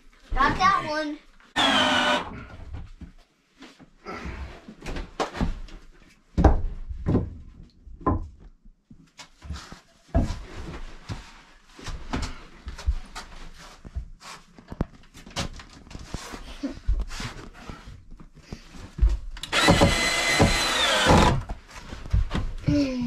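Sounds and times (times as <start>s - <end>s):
wooden knocks and thumps: 6.4s - 8.5s, 19.0s - 21.4s.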